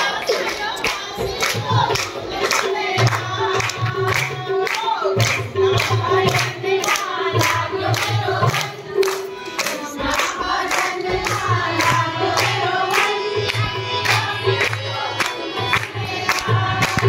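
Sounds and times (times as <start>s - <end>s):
congregation clapping in time: 0.0s - 17.0s
group devotional singing with music: 0.0s - 17.0s.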